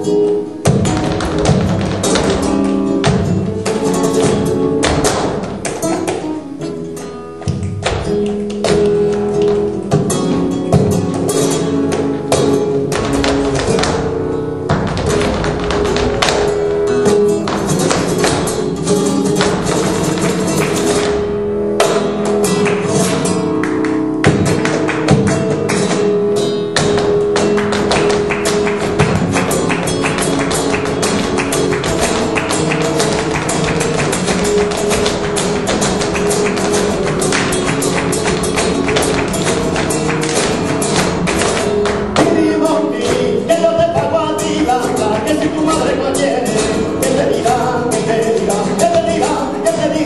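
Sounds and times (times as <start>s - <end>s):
flamenco guitar: 0.0s - 50.0s
rapid sharp percussive taps: 0.6s - 6.4s, 7.4s - 50.0s
person singing: 42.2s - 50.0s.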